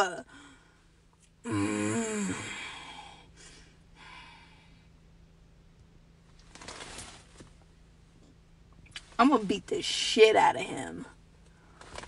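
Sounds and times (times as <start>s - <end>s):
low steady hum: 0.0s - 12.0s
faint breathing: 0.3s - 1.0s, 2.2s - 5.0s
brief rustle: 6.4s - 7.6s.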